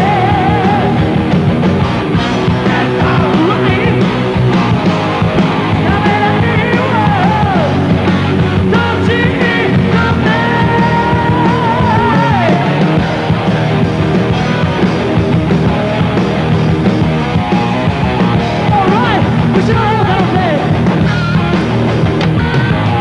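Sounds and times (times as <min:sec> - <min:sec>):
heavy metal band playing: 0:00.0 - 0:23.0.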